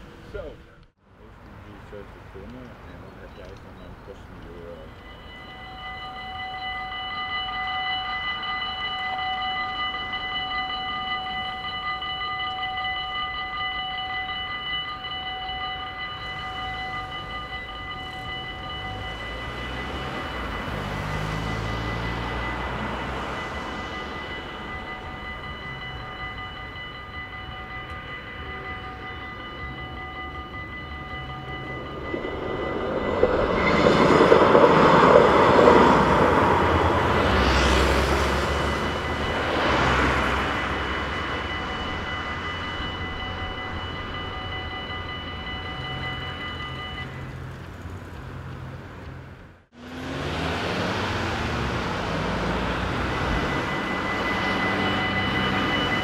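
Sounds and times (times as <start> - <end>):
train passing with rumble: 0.0 - 56.0
level crossing bells ringing: 1.7 - 56.0.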